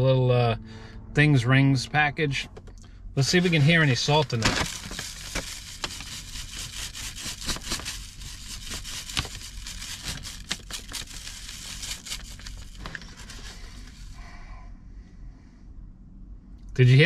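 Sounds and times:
paper bag crinkling: 0:03.4 - 0:14.2
salt and fries rattling: 0:04.1 - 0:13.5.

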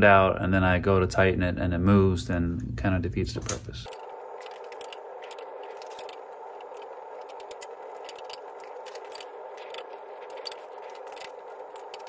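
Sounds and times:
hex key clicking on metal screws: 0:03.9 - 0:12.0.

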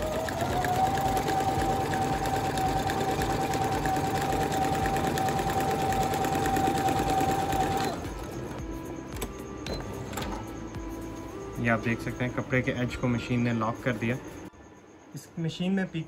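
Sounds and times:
sewing machine running: 0:00.0 - 0:08.6.

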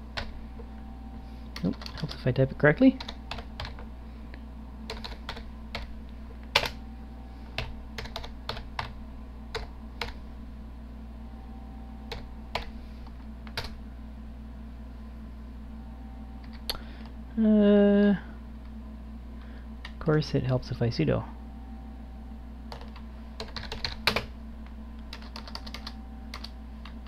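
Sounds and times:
typing on computer keyboard: 0:01.6 - 0:02.2, 0:03.0 - 0:03.8, 0:04.9 - 0:05.9, 0:07.6 - 0:08.9, 0:22.7 - 0:24.3, 0:25.1 - 0:27.0.

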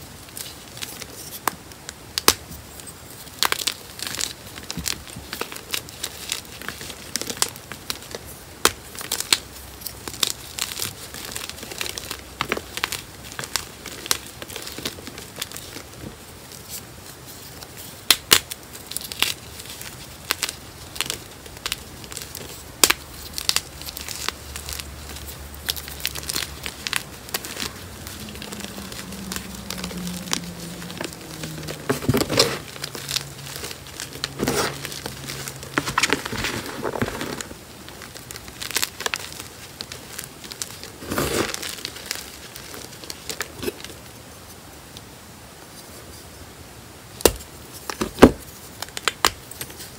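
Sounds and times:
chalk crunching and crackling: 0:00.0 - 0:44.6
crumbs falling: 0:00.2 - 0:44.0, 0:47.2 - 0:49.9.

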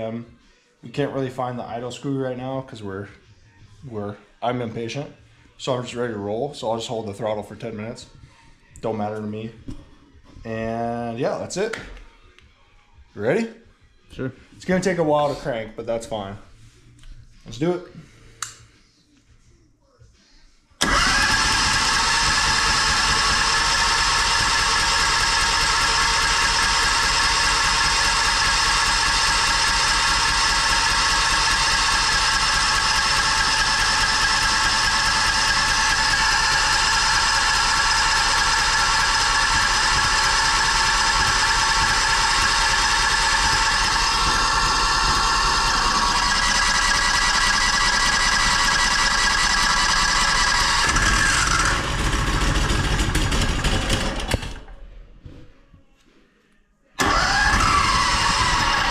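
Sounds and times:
engine running: 0:20.8 - 0:54.8, 0:57.0 - 0:58.9
mechanical whine: 0:20.8 - 0:54.8.

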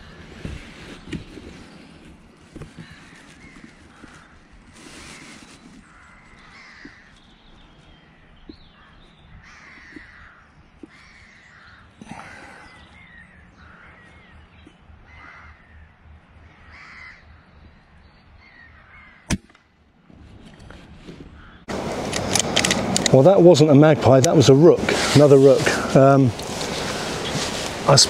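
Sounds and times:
rooks cawing: 0:02.6 - 0:17.8, 0:18.4 - 0:19.3, 0:21.4 - 0:22.3, 0:23.2 - 0:28.0.

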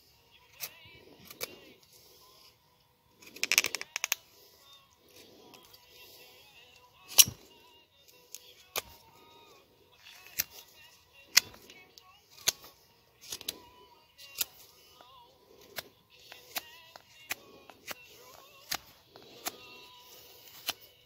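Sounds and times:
knife carving wood cracks: 0:00.6 - 0:01.6, 0:03.2 - 0:04.2, 0:07.1 - 0:07.4, 0:08.1 - 0:09.1, 0:10.1 - 0:10.7, 0:11.3 - 0:11.8, 0:12.4 - 0:20.9.

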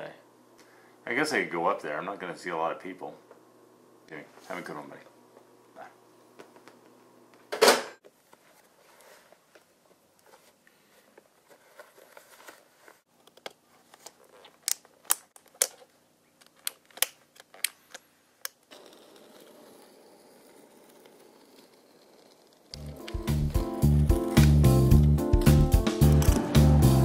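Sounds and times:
laces and straps rustling: 0:08.3 - 0:15.9.

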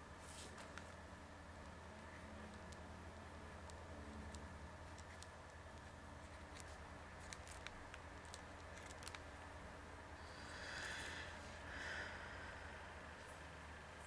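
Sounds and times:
steady low hum: 0:00.0 - 0:14.0
soft breathy hiss: 0:10.2 - 0:13.5.

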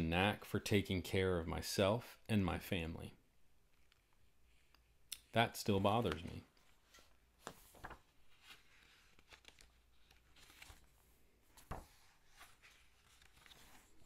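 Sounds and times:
paper rustling: 0:05.7 - 0:14.0.

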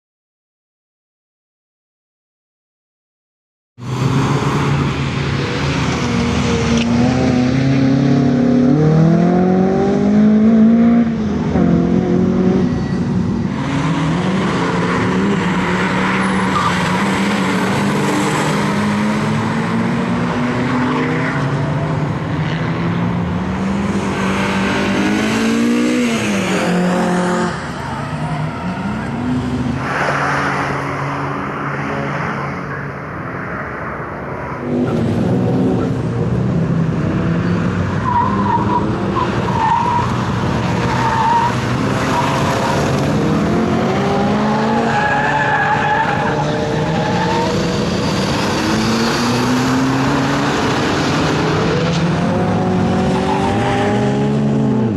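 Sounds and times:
car engine revving hard: 0:23.5 - 0:27.6, 0:41.1 - 0:54.9.

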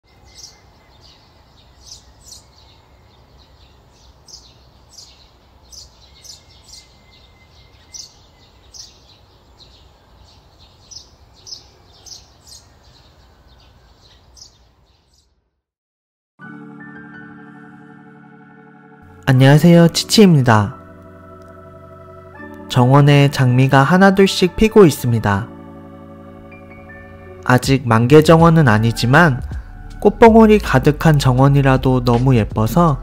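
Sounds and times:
small birds chirping: 0:00.1 - 0:15.4.

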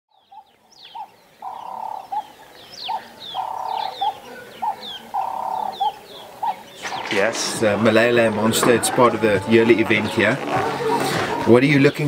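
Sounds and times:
bird cooing: 0:00.1 - 0:07.1, 0:09.8 - 0:11.5
small birds chirping: 0:00.1 - 0:12.0.

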